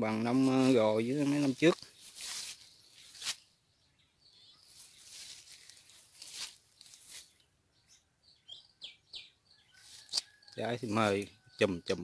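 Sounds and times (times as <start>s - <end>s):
faint rustling and crackling: 0.2s - 3.4s, 4.6s - 7.4s.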